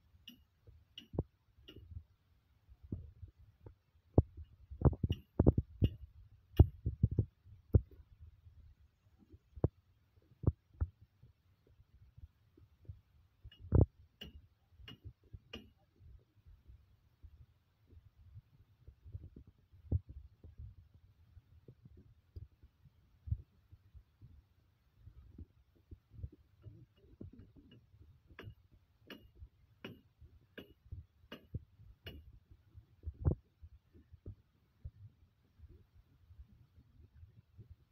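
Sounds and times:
soft low thumps: 2.8 - 8.4, 9.2 - 16.1, 17.2 - 37.9.

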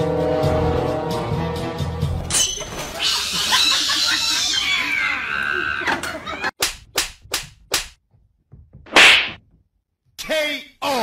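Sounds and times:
sharp smacks: 8.9 - 9.4.

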